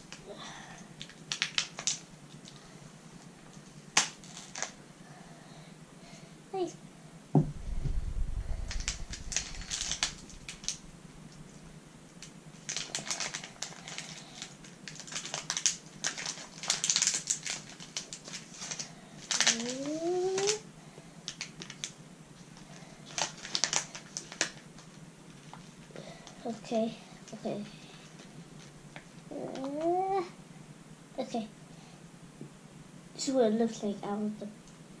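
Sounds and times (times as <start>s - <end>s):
plastic packaging crinkling: 1.0s - 2.6s, 3.5s - 4.8s, 8.6s - 11.6s, 12.2s - 20.6s, 21.3s - 25.9s
low thump: 7.3s - 8.6s.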